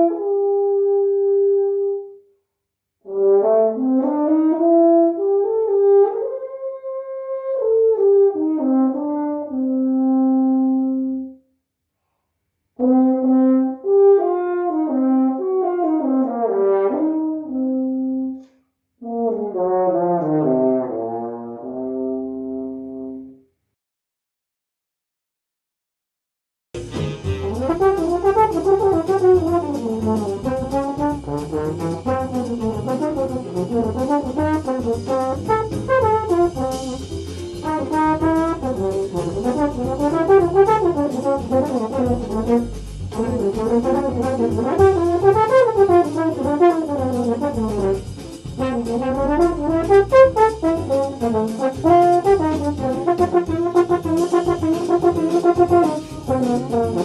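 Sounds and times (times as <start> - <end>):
french horn jazz solo: 0.0 - 2.2, 3.0 - 11.4, 12.8 - 23.4, 26.8 - 57.0.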